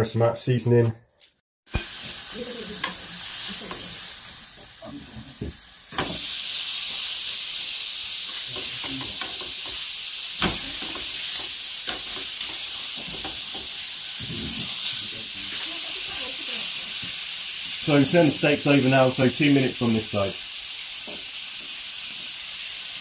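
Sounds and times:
steak sizzling in a pan: 1.7s - 23.0s
metal tongs clicking on pan: 2.8s - 3.0s.

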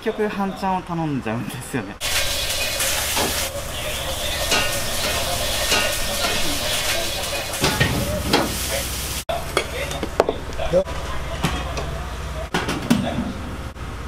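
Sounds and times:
rice sizzling in a wok: 2.0s - 9.3s.

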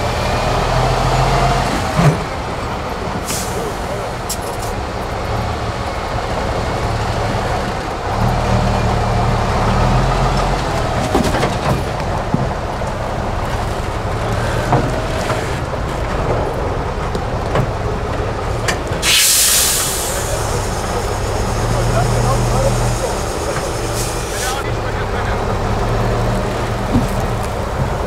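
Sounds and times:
truck engine under load: 0.0s - 28.0s
loud hiss: 3.2s - 4.2s, 19.0s - 24.6s.

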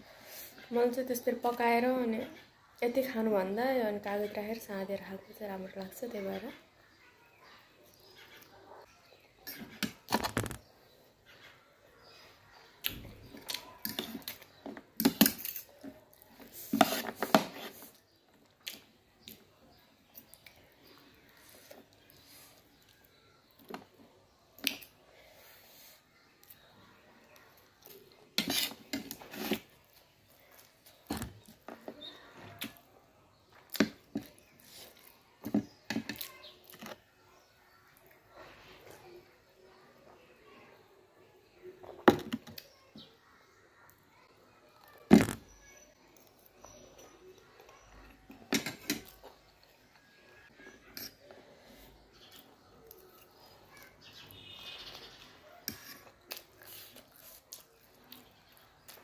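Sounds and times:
slurping and eating noodles: 50.5s - 59.0s.

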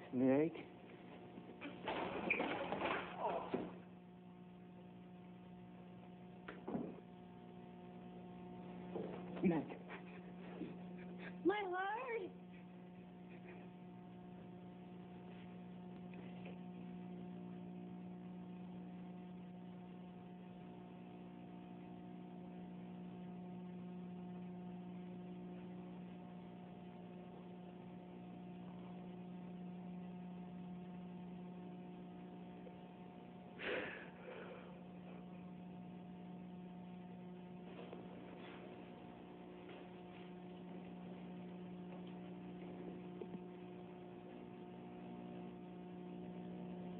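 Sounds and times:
steady electrical hum: 0.0s - 46.9s
person's voice: 11.4s - 12.3s.

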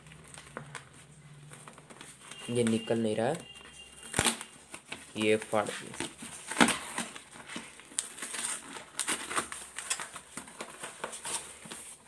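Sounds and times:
paper envelope rustling: 4.0s - 12.0s.

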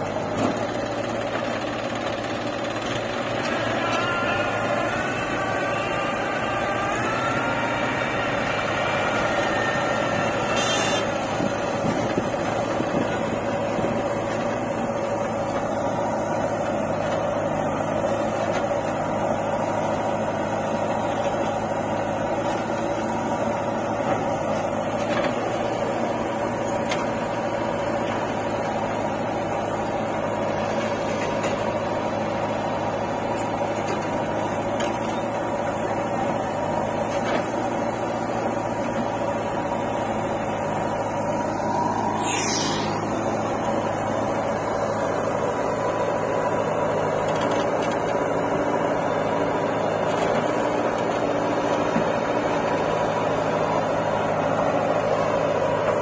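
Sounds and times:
diesel engines running: 0.0s - 56.0s.

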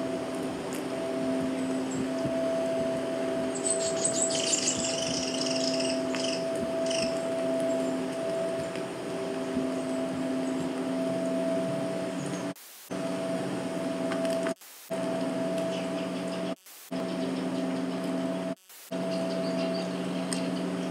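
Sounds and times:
hum of held tones: 0.0s - 20.9s
high rapid chirps and ticks: 3.5s - 7.8s.

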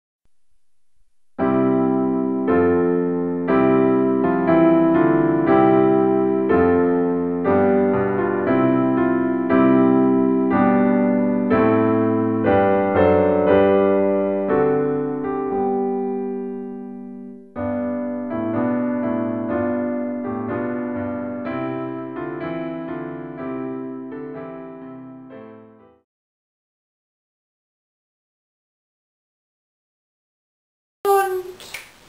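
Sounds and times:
electric piano chords: 1.4s - 26.0s.

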